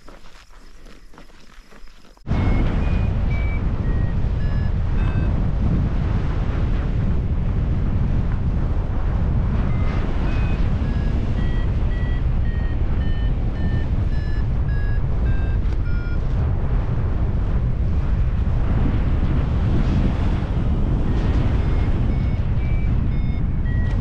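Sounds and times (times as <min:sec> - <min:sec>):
variometer beeps: 0:01.8 - 0:05.6, 0:09.6 - 0:16.3, 0:21.1 - 0:24.0
wind rumble on microphone: 0:02.2 - 0:24.0.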